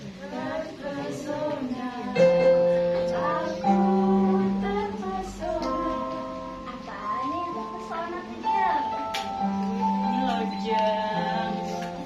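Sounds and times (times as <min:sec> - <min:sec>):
person singing: 0:00.0 - 0:12.0.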